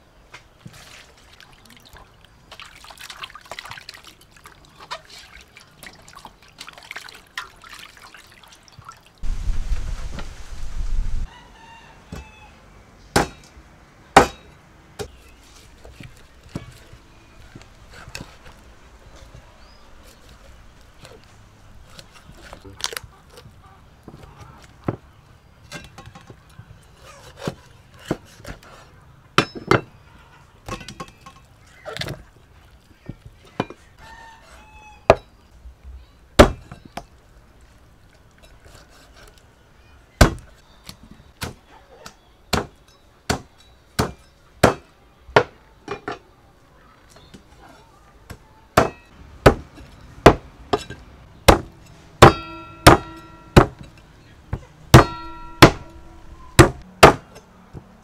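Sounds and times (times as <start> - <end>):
cleaver chopping on wooden block: 14.2 - 14.4, 48.8 - 49.6, 51.5 - 53.8, 55.0 - 56.0, 56.6 - 57.3
metallic ring: 52.3 - 53.6, 55.0 - 56.2.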